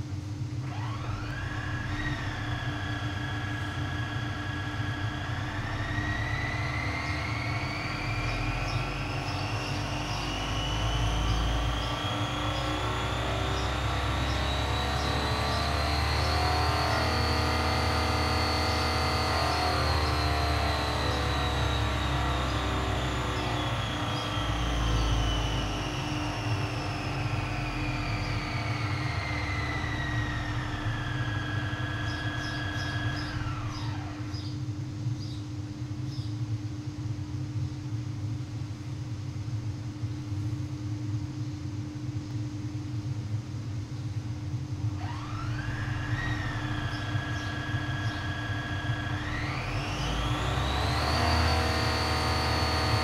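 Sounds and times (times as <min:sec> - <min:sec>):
engine whine: 0:00.0 - 0:53.0
steady low hum: 0:00.0 - 0:53.0
engine generator revving: 0:00.5 - 0:34.6, 0:44.8 - 0:53.0.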